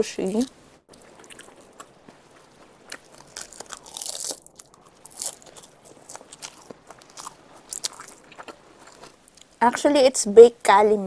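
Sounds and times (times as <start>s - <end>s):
crisp crunching while chewing: 0.9s - 9.6s.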